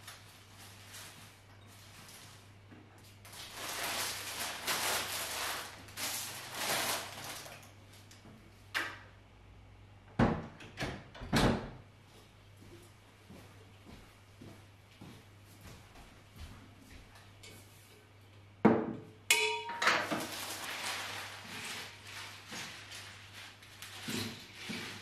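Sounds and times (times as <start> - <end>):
flower wrapping rustling: 0.0 - 8.0, 20.0 - 25.0.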